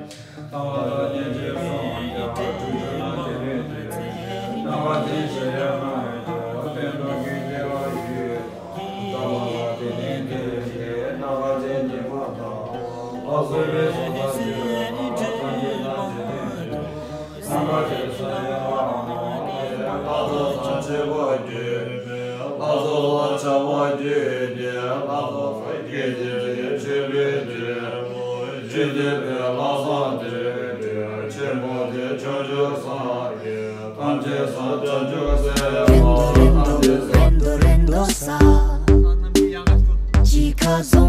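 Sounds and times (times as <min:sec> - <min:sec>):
monk chanting prayers: 0:00.0 - 0:37.0
deep bass music beat: 0:35.3 - 0:41.0.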